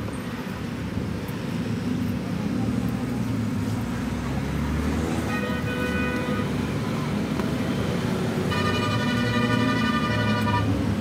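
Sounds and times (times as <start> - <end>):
road traffic rumble: 0.0 - 11.0
vehicle horn: 5.3 - 6.5, 8.4 - 10.8.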